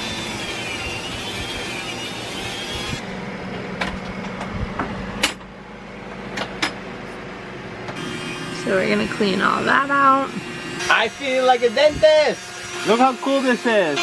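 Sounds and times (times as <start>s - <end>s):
rotary tool grinding metal: 0.0s - 3.1s, 8.0s - 14.0s
steady low hum: 0.0s - 12.8s.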